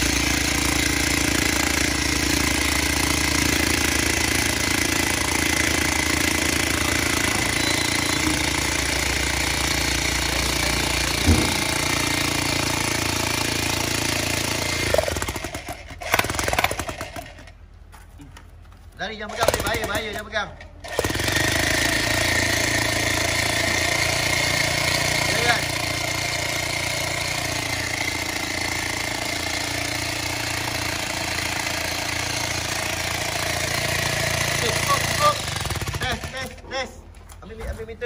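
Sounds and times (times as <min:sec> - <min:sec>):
demolition hammer hammering: 0:00.0 - 0:17.2, 0:20.9 - 0:36.6
short knocks: 0:11.1 - 0:11.9.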